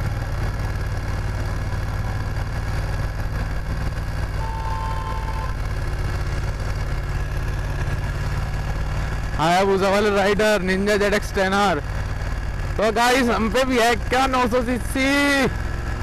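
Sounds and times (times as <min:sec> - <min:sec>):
motorcycle engine running: 0:00.0 - 0:16.0
road and wind noise: 0:00.0 - 0:16.0
short high tone: 0:04.4 - 0:05.6.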